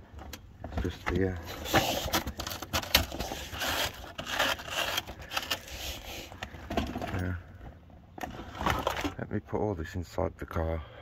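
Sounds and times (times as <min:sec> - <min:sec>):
hand scraping rust on steel: 0:01.4 - 0:06.6.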